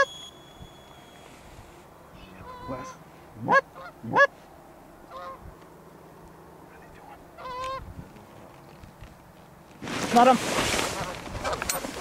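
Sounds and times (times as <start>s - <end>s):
goose honking: 2.2s - 4.3s, 5.1s - 5.4s, 7.4s - 7.8s.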